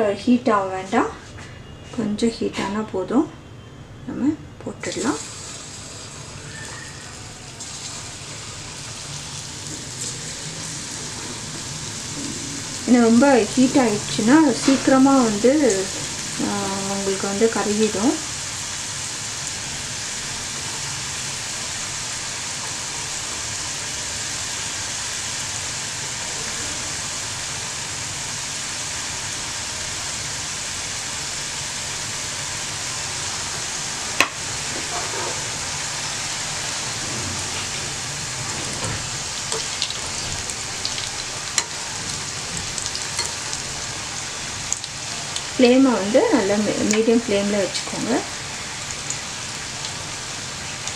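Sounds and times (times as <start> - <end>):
chips frying in oil: 4.7 - 50.9.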